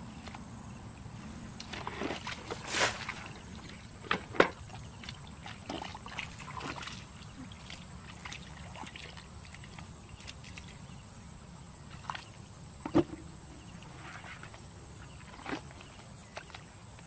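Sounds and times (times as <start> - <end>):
splashes in muddy water: 1.6 - 11.0.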